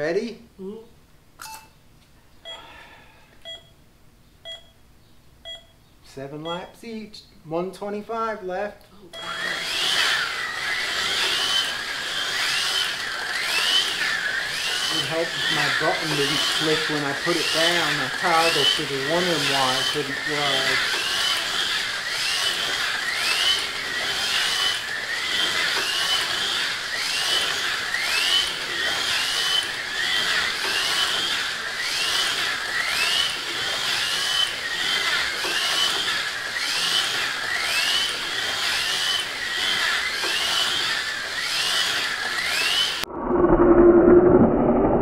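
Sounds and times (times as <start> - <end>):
slot car motors whining: 9.1 - 43.6.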